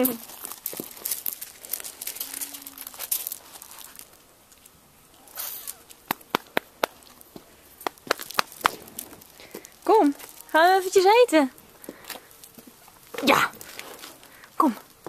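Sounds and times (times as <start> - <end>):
gravel crunching and rattling: 0.0 - 15.0
stones clicking together: 5.5 - 10.5.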